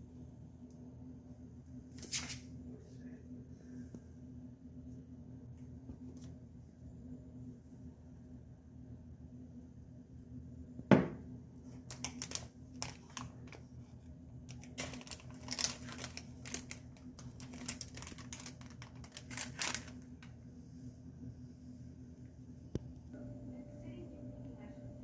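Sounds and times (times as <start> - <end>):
low steady hum: 0.0 - 25.0
plastic packets crinkling: 11.8 - 13.7, 14.5 - 20.3.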